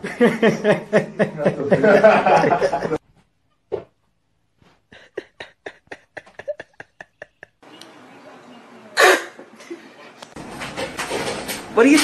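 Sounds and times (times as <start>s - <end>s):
person laughing in breathy bursts: 4.9s - 7.6s.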